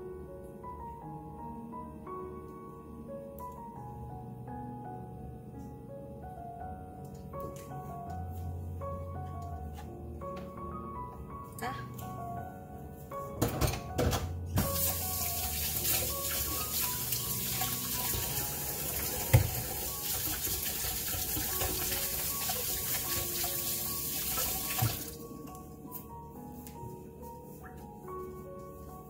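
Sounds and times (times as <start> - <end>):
tap running into sink: 13.5 - 25.1.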